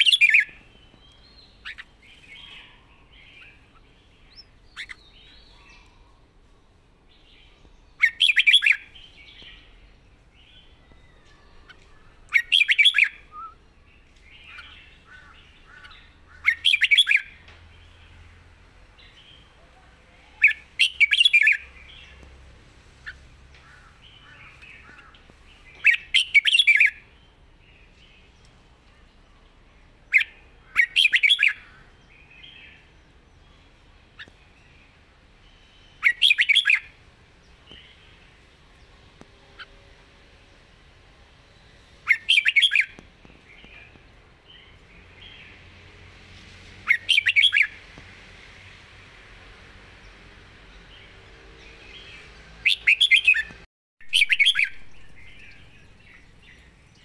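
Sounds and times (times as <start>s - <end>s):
bird singing sweeping notes: 0.0s - 6.2s, 7.1s - 18.4s, 23.9s - 28.2s, 30.1s - 37.0s, 41.3s - 46.0s, 46.7s - 47.8s, 50.7s - 57.0s
faint bird chirps: 0.0s - 6.4s
bird warbling whistled notes: 52.7s - 55.5s.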